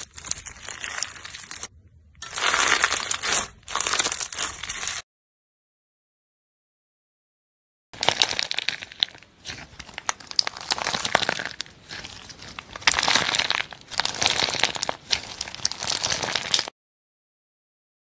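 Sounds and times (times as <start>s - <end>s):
slime crunching and clicking: 8.0s - 16.7s.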